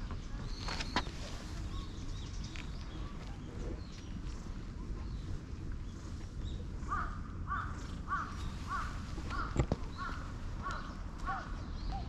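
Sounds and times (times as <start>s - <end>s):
crow cawing: 6.9s - 11.6s.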